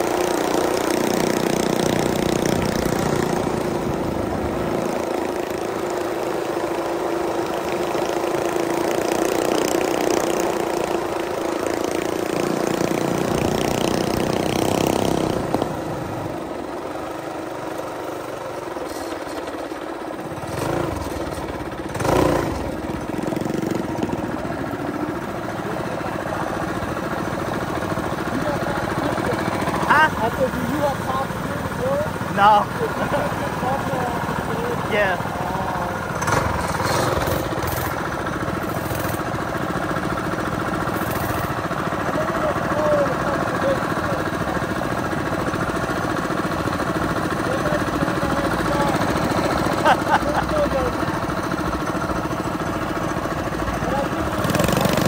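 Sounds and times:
mini bike engine running: 0.0 - 55.0.

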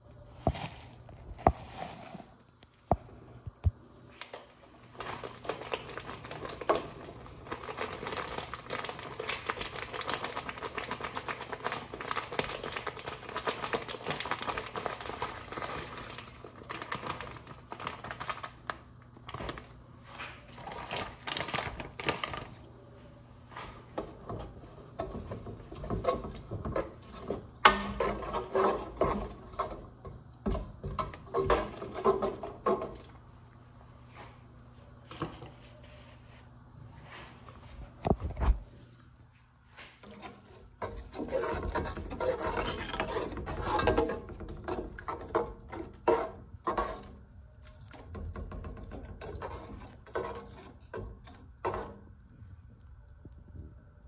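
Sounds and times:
plastic packaging crinkling: 4.2 - 22.7, 40.9 - 46.2.

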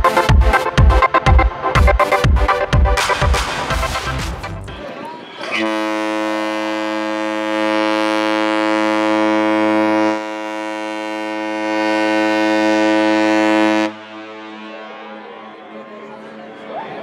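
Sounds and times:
ship horn long low blast: 5.5 - 16.7.

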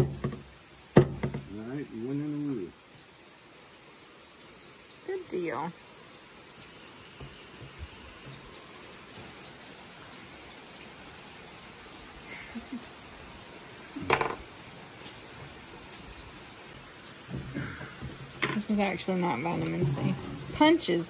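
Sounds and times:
knocks: 0.0 - 1.5, 14.0 - 14.4
rain falling: 0.0 - 21.0.

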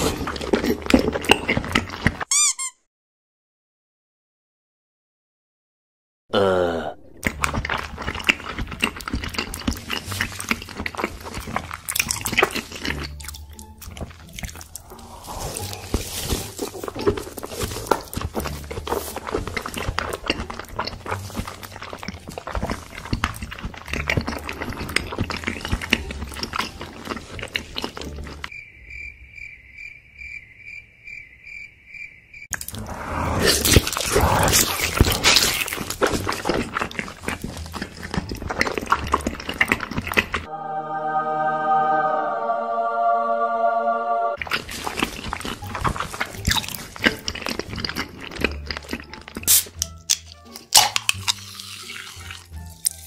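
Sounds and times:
wet chewing and mouth smacking: 0.0 - 2.3, 7.2 - 28.5, 33.5 - 40.5, 44.4 - 53.0
cricket chirping sound effect: 28.5 - 33.6.

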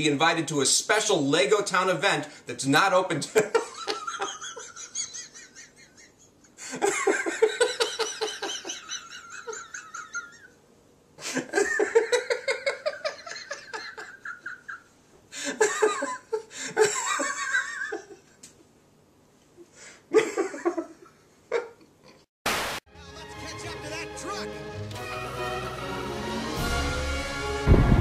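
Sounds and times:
man laughing hard: 3.3 - 10.6, 11.2 - 18.3, 20.1 - 21.8.

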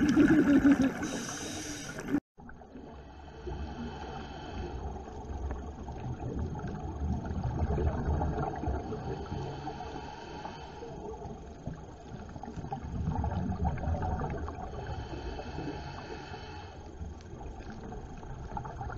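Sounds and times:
exhaled bubbles rumbling underwater: 0.0 - 18.9
regulator inhalation hiss: 0.9 - 2.2, 9.0 - 11.0, 14.7 - 17.1.

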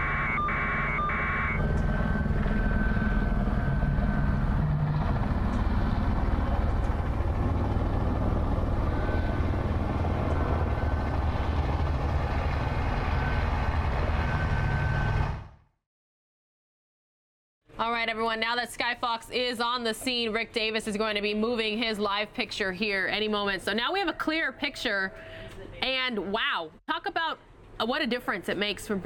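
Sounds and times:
heavy vehicle engine rumble: 1.6 - 15.4.

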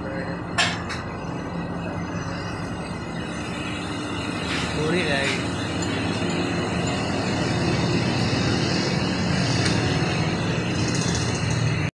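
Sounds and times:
mechanical drone with hum and hiss: 0.0 - 11.9.

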